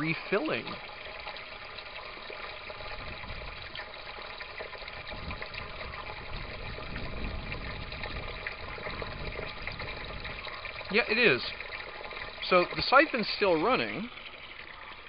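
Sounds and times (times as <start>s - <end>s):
water trickling and pouring: 0.0s - 15.0s.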